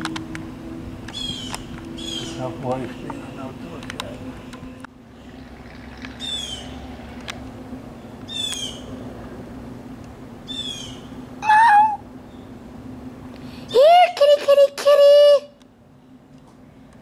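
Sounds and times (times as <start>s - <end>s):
bird high downward calls: 1.0s - 4.5s, 5.2s - 7.0s, 7.9s - 9.0s, 10.4s - 12.6s
cat meowing: 11.4s - 12.0s.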